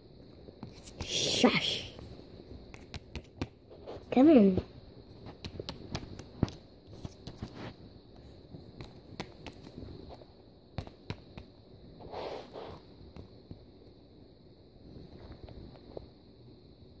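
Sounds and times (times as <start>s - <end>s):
soft handling rustle: 3.7s - 11.0s.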